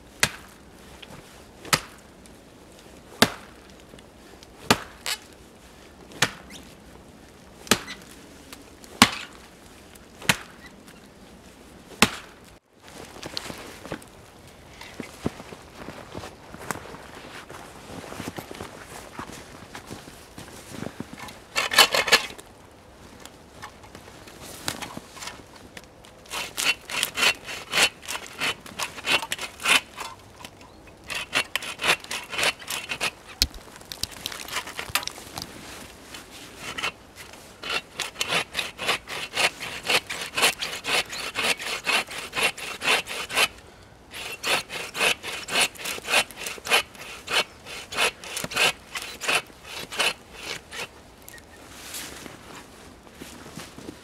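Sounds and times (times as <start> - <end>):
hand saw cutting wood: 21.2 - 22.4, 26.3 - 33.5, 36.6 - 50.9.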